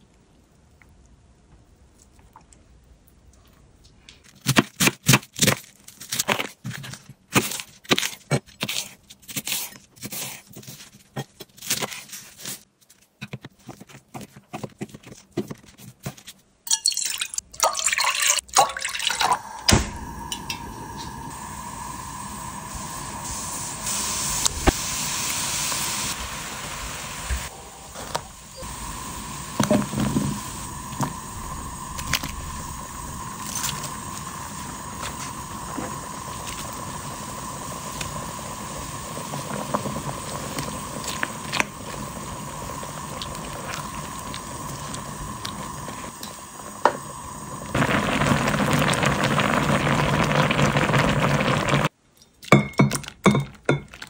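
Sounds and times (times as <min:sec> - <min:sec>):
sauce bubbling in a pan: 0:17.3 - 0:51.9.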